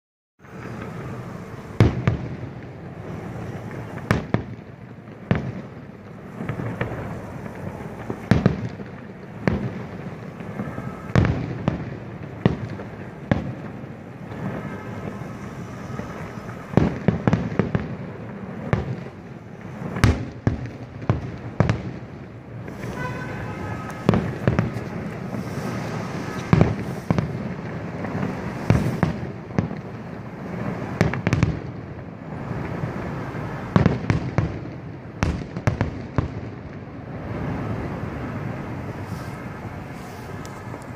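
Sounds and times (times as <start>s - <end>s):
small firework pops: 0.5s - 32.0s, 33.7s - 36.8s, 39.0s - 40.9s
fireworks shells bursting: 22.6s - 29.8s.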